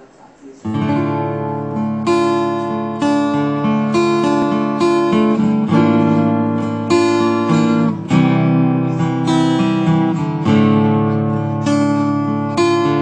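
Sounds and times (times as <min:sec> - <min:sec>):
acoustic guitar strummed: 0:00.6 - 0:13.0.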